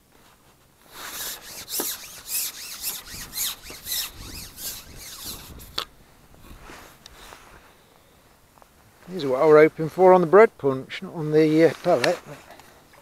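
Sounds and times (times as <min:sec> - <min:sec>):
fishing pole rubbing and rasping: 0:00.9 - 0:07.4.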